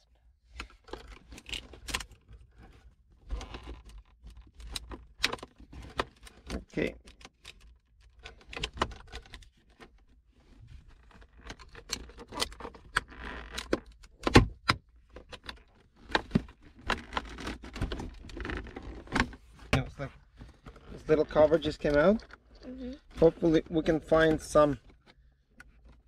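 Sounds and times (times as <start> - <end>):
plastic trim clicking and rattling: 3.3 - 10.0.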